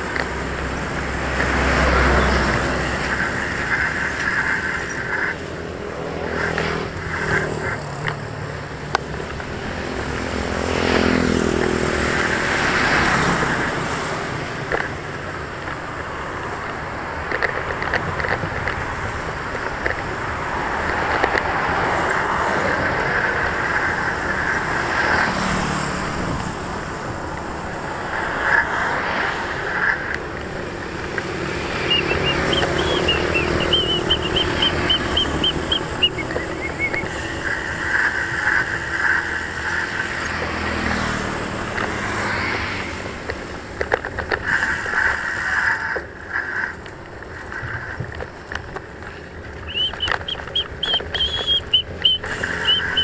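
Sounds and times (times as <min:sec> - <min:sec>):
motorcycles passing: 0:00.0 - 0:53.0
road traffic passing: 0:00.0 - 0:53.0
vehicle passing with falling pitch: 0:31.2 - 0:37.2, 0:49.6 - 0:53.0.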